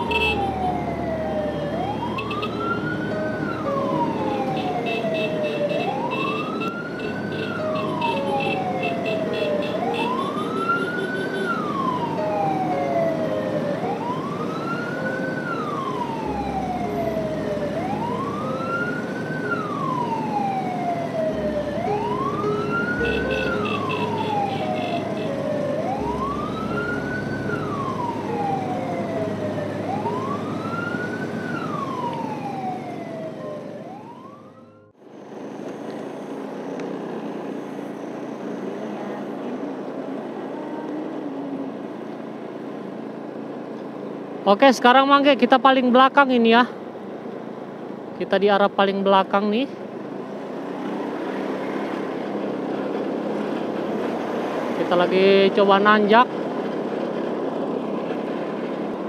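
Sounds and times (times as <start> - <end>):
vehicle siren wailing: 0.0 - 35.0, 50.7 - 59.0
road and engine noise: 0.0 - 59.0.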